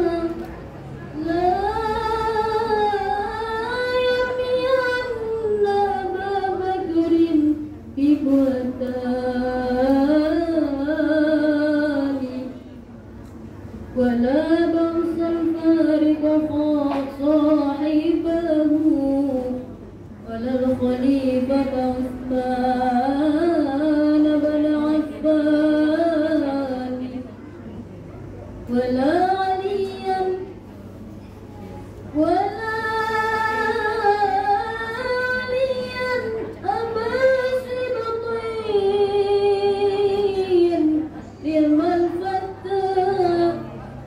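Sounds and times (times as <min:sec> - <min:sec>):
women singing in unison: 0:01.2 - 0:12.5, 0:32.2 - 0:43.8.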